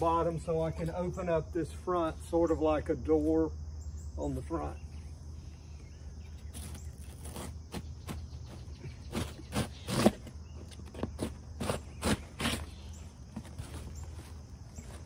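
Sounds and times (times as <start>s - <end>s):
insects chirring: 0.0s - 15.0s
box cutter slicing cardboard: 6.6s - 8.3s, 9.1s - 12.8s.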